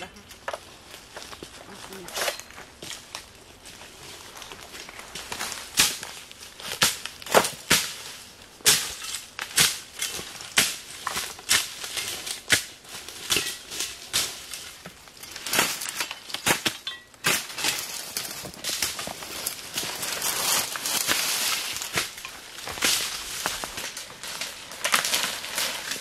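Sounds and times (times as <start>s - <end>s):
dry stems crunching: 0.0s - 26.0s
machete chopping: 5.7s - 8.0s, 8.6s - 14.4s.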